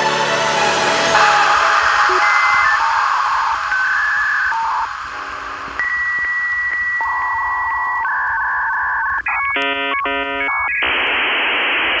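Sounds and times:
dial-up modem handshake: 2.1 - 11.0.

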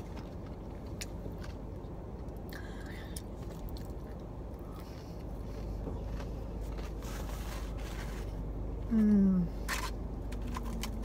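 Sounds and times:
person chewing food: 0.0 - 8.6
low steady hum: 0.0 - 11.0.

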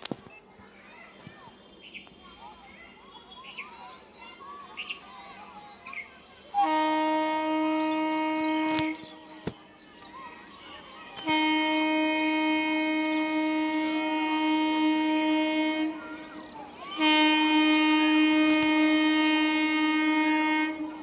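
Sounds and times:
train horn blasts: 6.5 - 9.4, 11.2 - 21.0.

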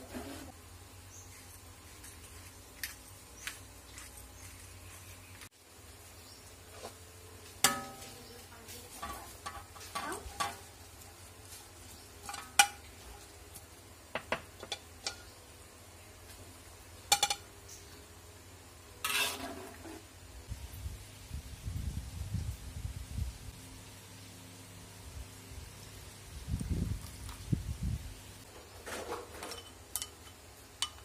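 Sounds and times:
metal spatula clinking on wok: 7.7 - 8.2, 29.5 - 31.0.

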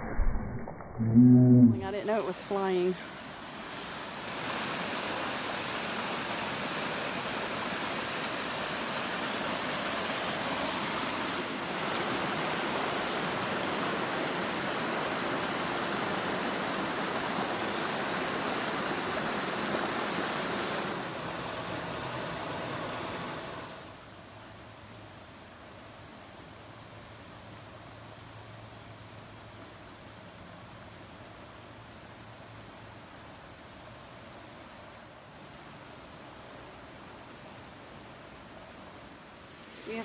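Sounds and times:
creek water rushing over rocks: 1.9 - 23.8.

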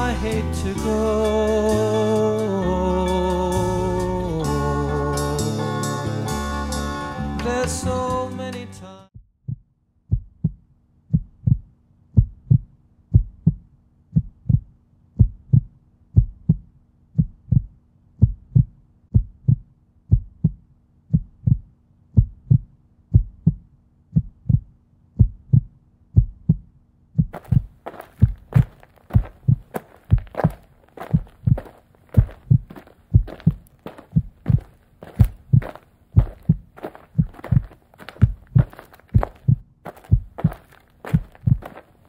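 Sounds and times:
heartbeat double thumps: 9.2 - 41.8.

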